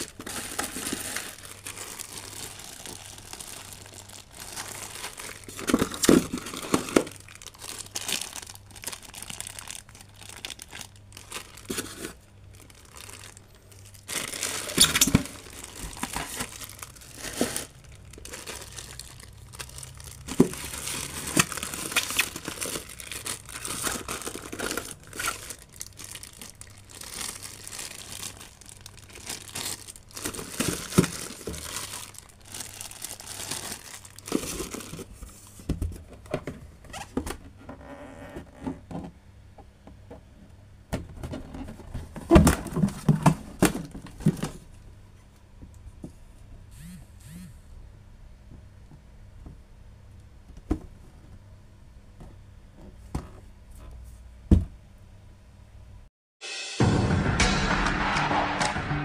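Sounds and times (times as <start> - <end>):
plastic bags crinkling: 0.0 - 35.6.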